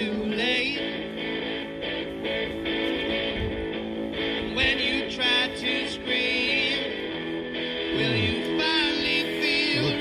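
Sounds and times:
man singing: 0.0 - 1.1, 4.5 - 7.0, 7.8 - 10.0
guitar band song: 0.0 - 10.0.

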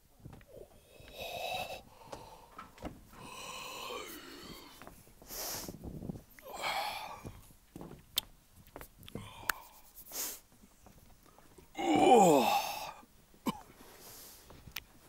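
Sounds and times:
person making breathy vocal sounds: 0.5 - 2.5, 3.2 - 4.9, 6.4 - 7.4, 9.1 - 9.9, 11.7 - 13.0
short hiss: 5.3 - 5.8, 9.7 - 10.5.

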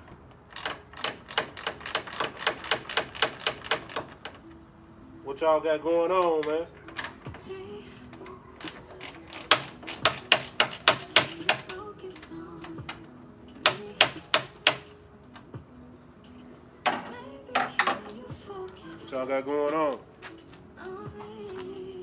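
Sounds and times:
hand tool clicks: 0.5 - 4.4, 8.0 - 15.0.

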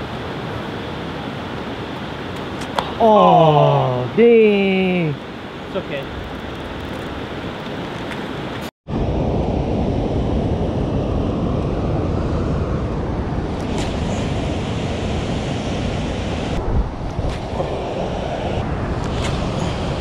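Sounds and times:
rushing water: 0.0 - 8.7
wind buffeting microphone: 5.4 - 20.0.

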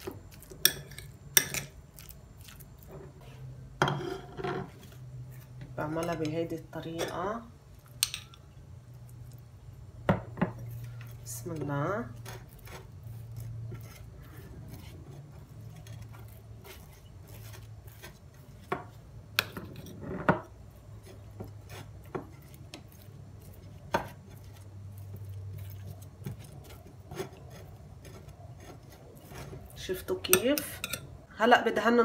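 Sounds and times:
spoon scraping bread: 0.0 - 9.5, 10.3 - 31.2
low steady hum: 0.0 - 32.0.

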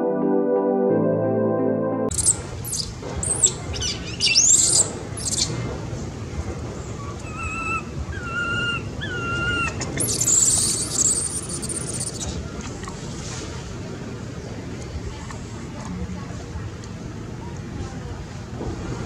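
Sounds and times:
baby monkey screaming: 2.1 - 5.5, 7.0 - 12.3
short whistled calls: 2.1 - 5.6, 7.3 - 12.4.

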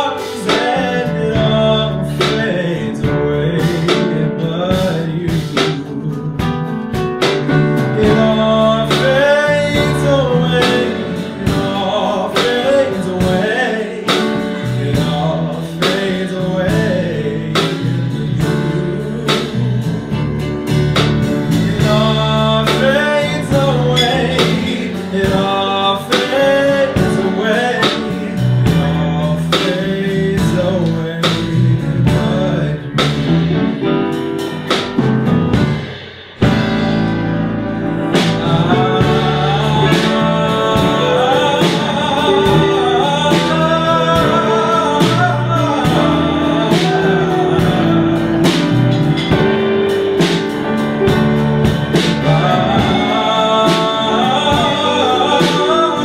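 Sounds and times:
man singing: 0.0 - 34.1, 36.4 - 56.0
bass guitar: 0.0 - 56.0
drum kit beat: 0.0 - 56.0
piano: 0.0 - 56.0
electric guitar: 33.3 - 56.0.

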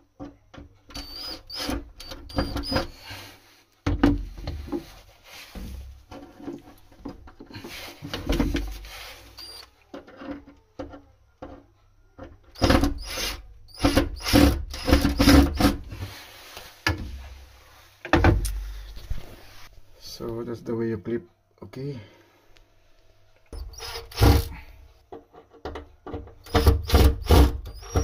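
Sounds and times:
plastic pipe fittings knocking: 3.8 - 5.0, 25.1 - 28.0.

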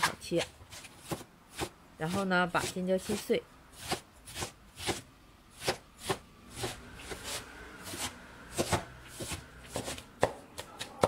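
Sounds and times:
cleaver chopping on wooden board: 1.0 - 1.7, 3.8 - 5.0, 5.6 - 11.0.

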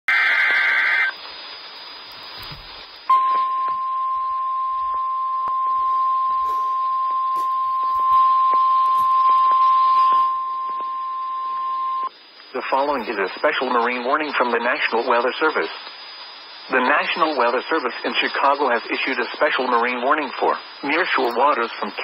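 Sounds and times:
faint radio hiss: 0.1 - 22.0
steady alarm beep: 3.1 - 12.1
digital data tones: 3.1 - 15.7.

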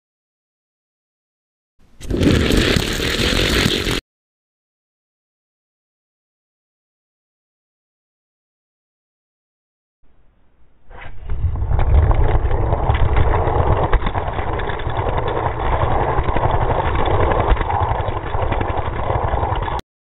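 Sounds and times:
fast rattle of small clicks: 11.7 - 19.8.

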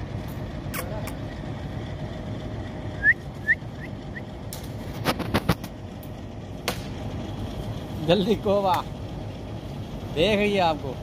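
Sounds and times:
low background rumble: 0.0 - 11.0.

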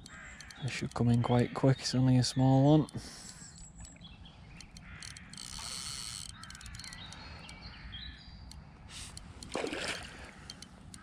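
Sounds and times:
bird calls: 0.0 - 9.2.

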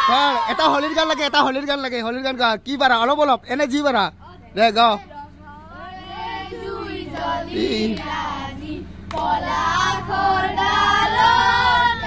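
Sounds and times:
children singing together: 5.8 - 12.0.

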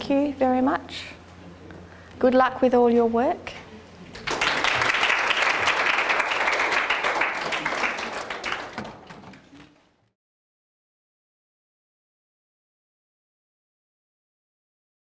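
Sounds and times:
audience applauding: 4.2 - 9.8.

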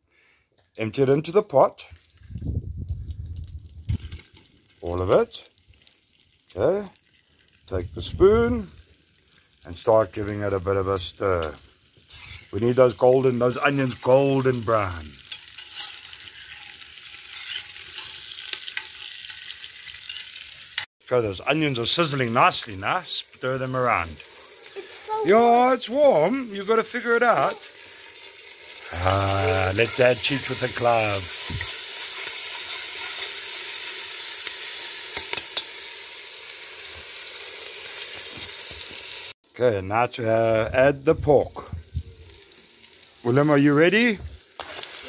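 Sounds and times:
onions sizzling in hot oil: 3.2 - 39.4, 40.4 - 45.0
spoon stirring and scraping pot: 11.4 - 12.6, 15.2 - 20.8, 29.8 - 33.4.

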